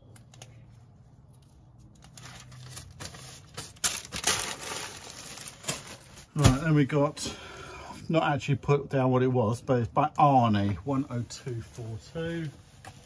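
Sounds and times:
plastic bags rustling: 0:02.0 - 0:07.0.

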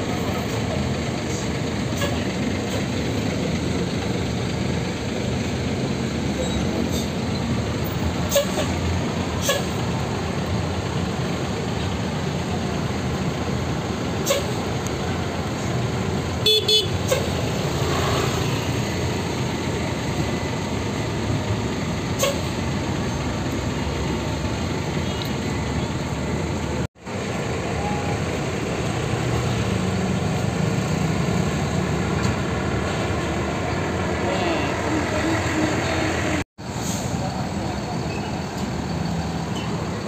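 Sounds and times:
bus diesel engine rumbling: 0:00.0 - 0:40.0.

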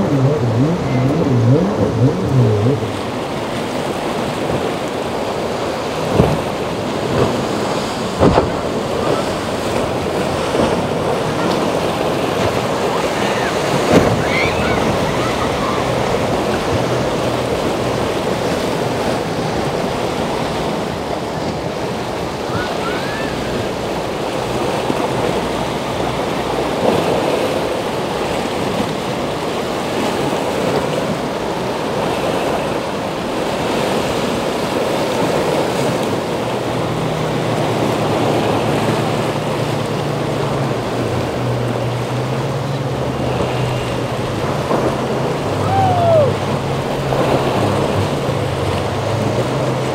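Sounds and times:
boat engine droning: 0:00.0 - 0:49.9
ocean waves breaking: 0:00.0 - 0:49.9.

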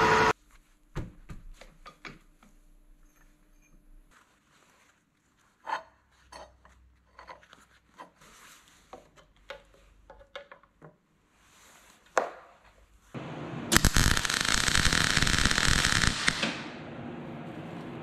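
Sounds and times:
welding arc crackling: 0:13.2 - 0:16.8.

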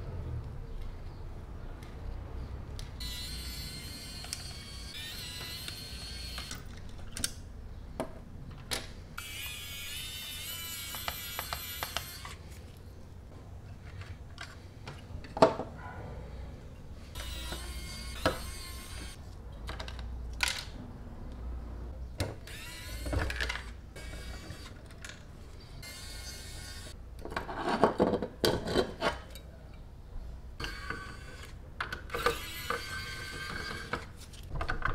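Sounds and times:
electric screwdriver whirring: 0:03.0 - 0:06.7, 0:09.2 - 0:12.4, 0:17.2 - 0:19.2, 0:22.4 - 0:24.7, 0:32.1 - 0:33.8.

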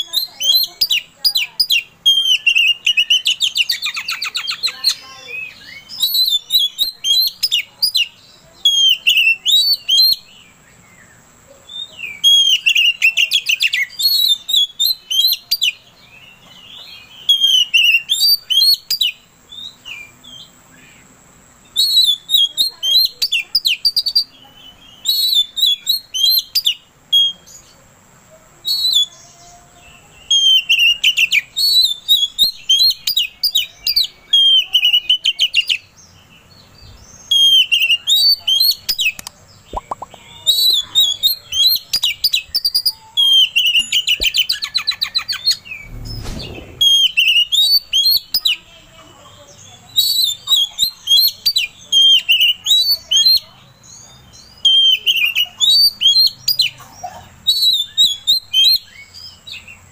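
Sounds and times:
bird singing whistled phrases: 0:00.0 - 0:10.4, 0:11.0 - 0:15.8, 0:16.8 - 0:20.5, 0:21.7 - 0:27.6, 0:28.6 - 0:29.3, 0:30.2 - 0:35.9, 0:37.2 - 0:48.7, 0:49.9 - 0:53.6, 0:54.3 - 0:56.8, 0:57.4 - 0:59.7
fast bird trill: 0:37.4 - 0:48.7.

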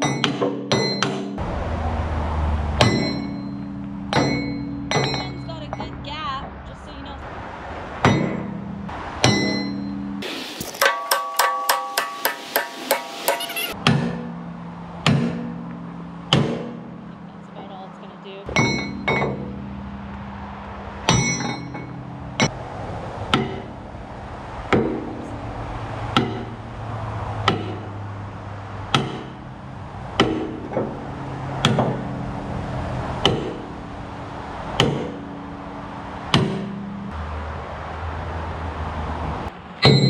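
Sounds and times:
sledgehammer striking metal: 0:00.0 - 0:01.4, 0:02.6 - 0:06.0, 0:08.0 - 0:17.6, 0:18.5 - 0:22.7, 0:23.3 - 0:37.2, 0:39.8 - 0:40.0.

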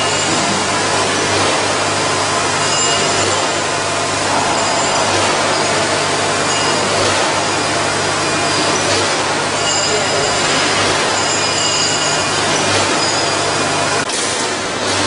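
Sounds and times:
low mechanical throb: 0:00.0 - 0:14.1
machinery hum and hiss: 0:00.0 - 0:15.0.

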